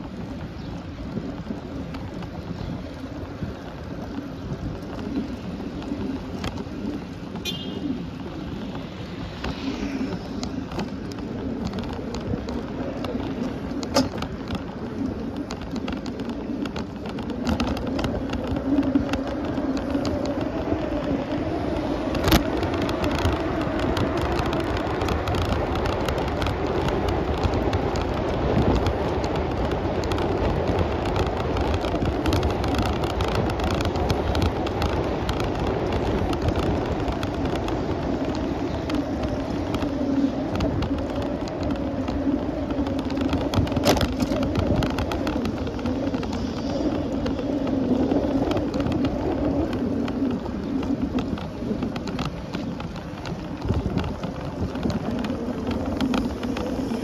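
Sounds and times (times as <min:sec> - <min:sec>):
tyres rolling on pavement: 0:00.0 - 0:57.0
wind on microphone: 0:00.0 - 0:57.0.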